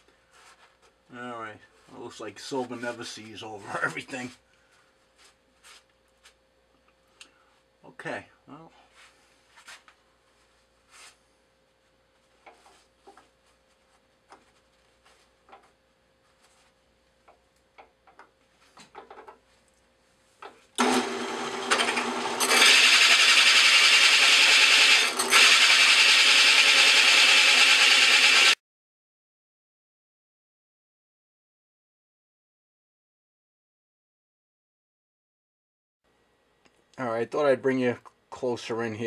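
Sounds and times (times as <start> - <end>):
hole saw cutting metal: 20.8 - 28.6.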